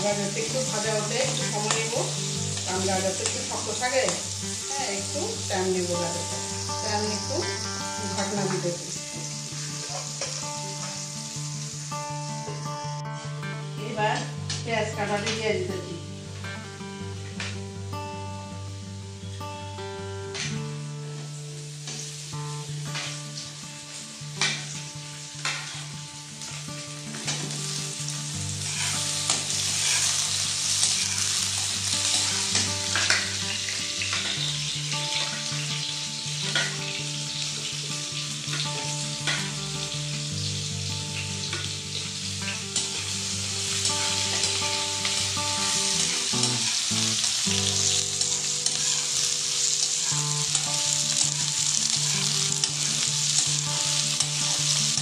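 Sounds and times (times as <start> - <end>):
vegetables sizzling in hot oil: 0.0 - 55.0
metal spatula scraping wok: 28.6 - 31.3, 47.8 - 50.7.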